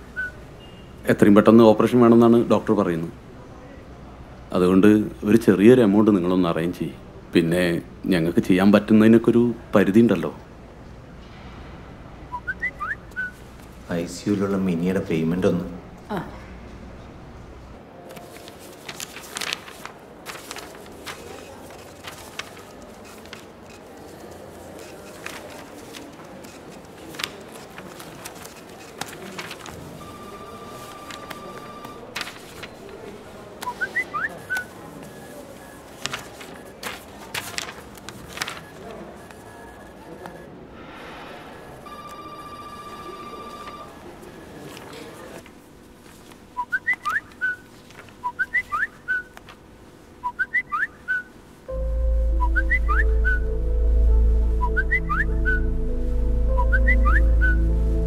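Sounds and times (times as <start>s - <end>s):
phone text alert tone: 30.0s - 32.2s, 41.8s - 44.0s, 51.7s - 58.0s
steady beep: 30.0s - 32.2s, 40.8s - 44.0s, 51.7s - 58.0s.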